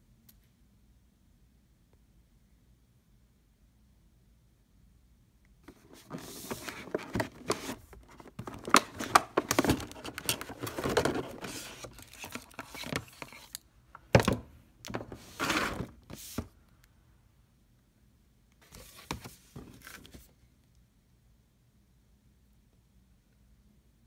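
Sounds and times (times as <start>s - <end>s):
cardboard packaging rustling: 5.7s - 13.6s.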